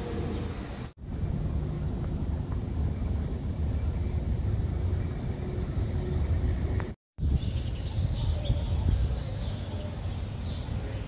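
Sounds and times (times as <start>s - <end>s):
birds chirping: 1.9s - 11.0s.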